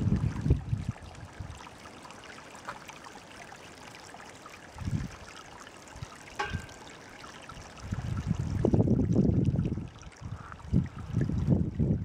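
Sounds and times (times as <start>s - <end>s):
meltwater trickling and dripping: 0.0s - 11.8s.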